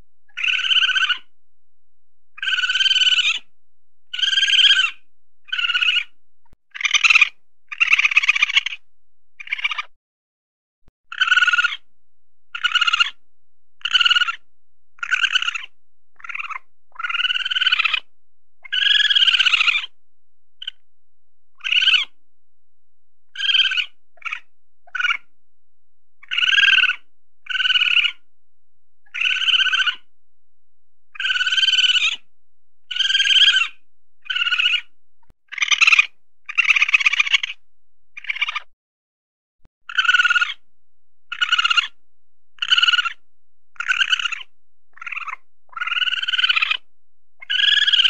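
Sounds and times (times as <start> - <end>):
weasel squealing: 0.3 - 1.3, 2.4 - 3.5, 4.1 - 8.8, 9.4 - 9.9, 11.1 - 11.9, 12.6 - 13.2, 13.8 - 14.4, 15.0 - 19.9, 21.6 - 22.2, 23.4 - 25.3, 26.2 - 28.2, 29.1 - 30.1, 31.2 - 32.2, 32.9 - 34.9, 35.5 - 37.6, 38.2 - 38.7, 39.9 - 40.6, 41.3 - 42.0, 42.6 - 43.2, 43.8 - 48.0.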